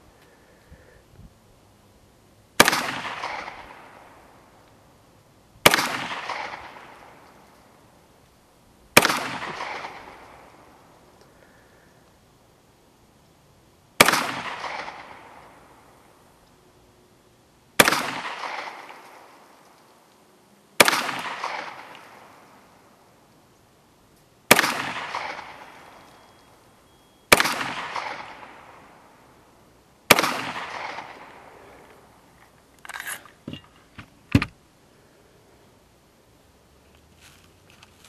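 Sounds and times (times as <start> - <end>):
pistol shots with echo: 2.6 - 4.1, 5.6 - 7.2, 9.0 - 10.6, 14.0 - 15.6, 17.8 - 19.3, 20.8 - 22.4, 24.5 - 26.0, 27.3 - 29.0, 30.1 - 31.6.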